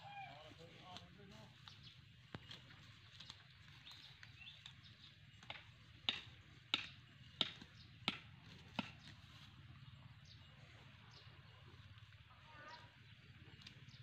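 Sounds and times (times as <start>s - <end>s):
stake being hammered into ground: 5.4s - 9.2s.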